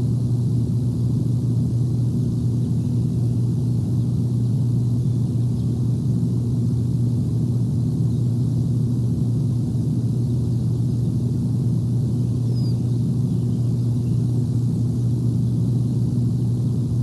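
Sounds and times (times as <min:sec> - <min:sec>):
low rumble with hum: 0:00.0 - 0:17.0
faint high chirp: 0:12.3 - 0:14.3.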